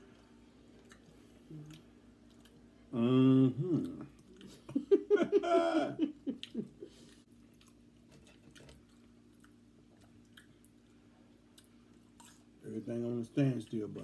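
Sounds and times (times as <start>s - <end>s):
wet chewing and mouth smacks: 0.1s - 2.7s, 6.4s - 12.5s
short vocal sound: 2.9s - 4.1s.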